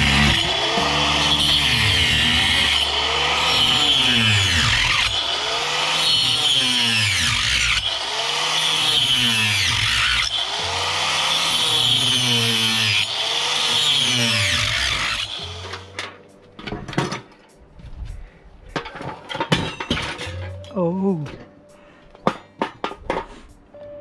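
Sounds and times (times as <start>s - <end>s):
power tool motor spinning up: 0.0s - 15.9s.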